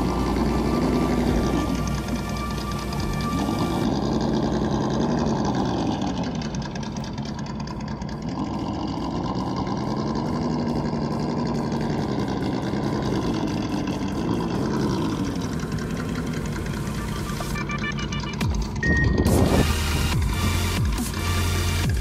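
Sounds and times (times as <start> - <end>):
simulated truck engine revving: 0.0 - 22.0.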